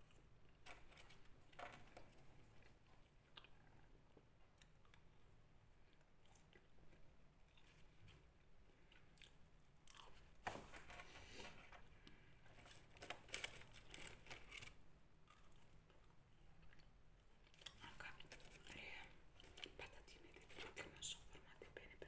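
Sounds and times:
person chewing fries: 2.3s - 10.4s, 12.0s - 19.8s.

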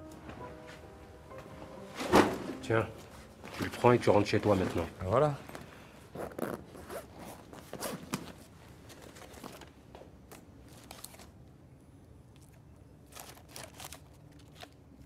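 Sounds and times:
banknotes rustling: 3.5s - 5.2s.

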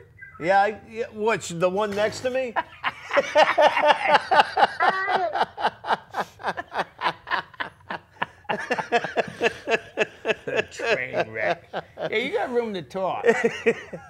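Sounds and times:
men laughing hard: 2.6s - 12.4s, 13.2s - 14.0s.

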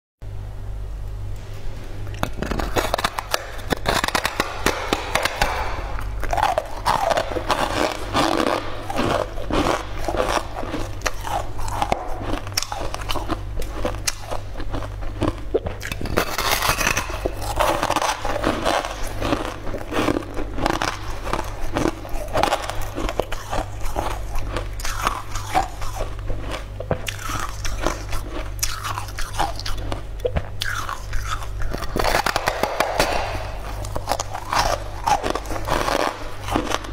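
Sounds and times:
crunchy biting and chewing: 2.0s - 36.9s.

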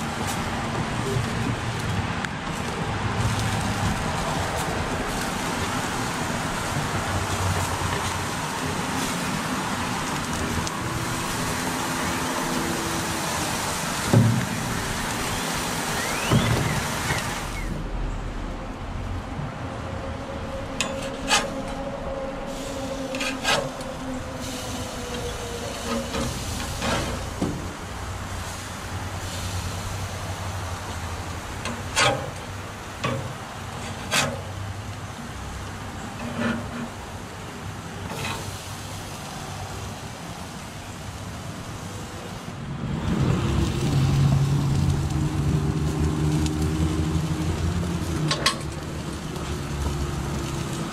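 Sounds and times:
gas grill hissing: 3.2s - 17.9s, 22.4s - 35.8s, 37.2s - 42.6s.

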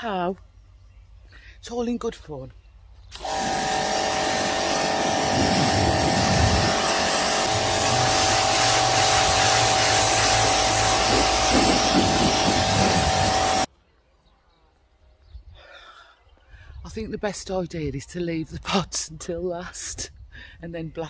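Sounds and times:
pressure washer motor whine: 3.1s - 13.7s
water jet spraying on stone: 3.2s - 13.7s.

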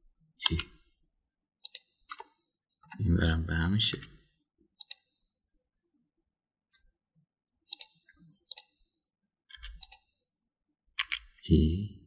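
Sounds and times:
mouse and keyboard clicks: 1.6s - 3.0s, 4.8s - 5.2s, 7.7s - 8.8s, 9.5s - 10.2s, 11.0s - 11.4s.

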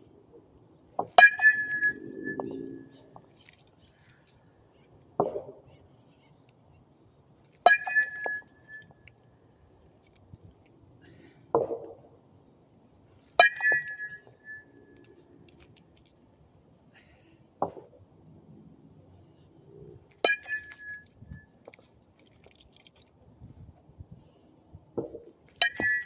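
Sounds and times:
bat hitting softball ping: 1.1s - 2.5s, 7.7s - 8.4s, 13.4s - 14.6s, 25.6s - 26.0s.

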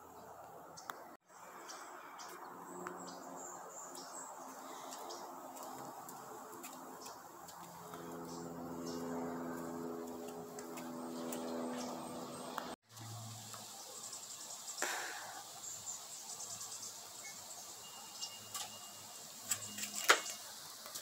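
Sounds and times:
small birds chirping: 0.0s - 21.0s
low droning hum: 1.4s - 13.5s.

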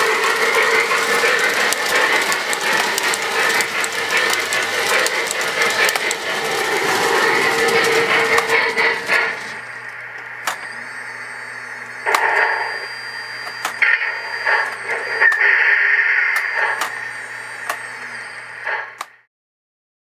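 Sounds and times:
steam hissing bursts: 0.0s - 9.8s, 13.8s - 19.0s
steady hum: 0.0s - 19.2s.

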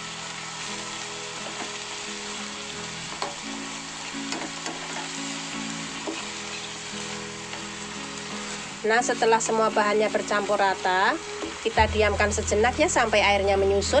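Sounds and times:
food sizzling in a wok: 0.0s - 14.0s.

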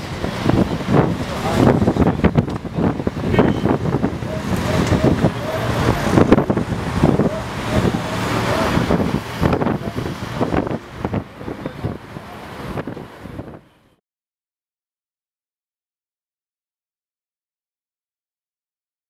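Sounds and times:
crowd voices: 0.0s - 13.6s
wind buffeting microphone: 0.0s - 13.8s
road traffic: 0.0s - 14.0s.

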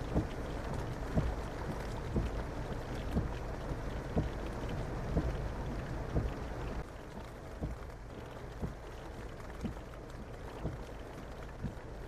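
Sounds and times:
heavy rain pouring: 0.0s - 12.0s.

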